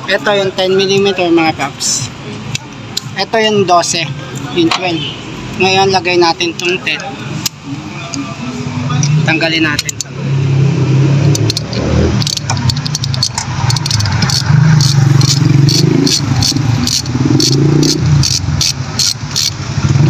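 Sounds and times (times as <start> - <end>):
ratchet wrench clicking: 9.0 - 10.1, 11.2 - 20.0.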